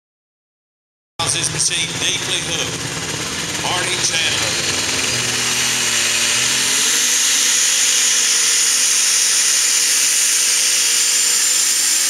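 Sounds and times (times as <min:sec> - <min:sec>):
tractor engine screaming under load: 0:01.2 - 0:12.0
high turbo whistle: 0:03.0 - 0:12.0.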